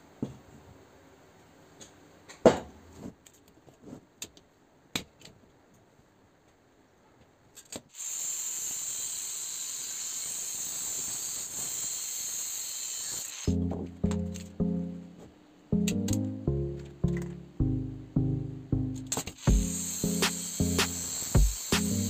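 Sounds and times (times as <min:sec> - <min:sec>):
angle grinder cutting steel: 0:08.0 - 0:13.5, 0:19.4 - 0:22.0.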